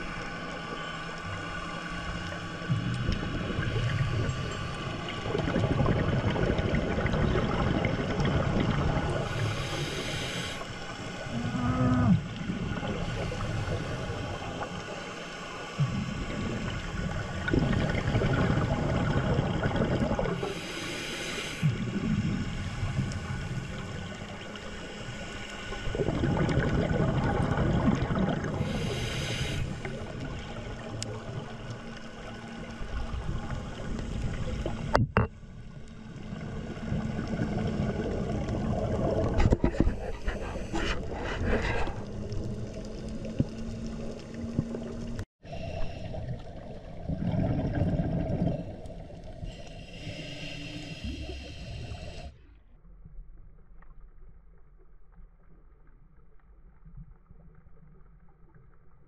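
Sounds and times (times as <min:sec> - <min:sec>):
exhaled bubbles gurgling: 0:00.0 - 0:52.4
regulator inhalation hiss: 0:09.2 - 0:11.2, 0:20.4 - 0:24.0, 0:28.6 - 0:30.0, 0:49.4 - 0:52.3.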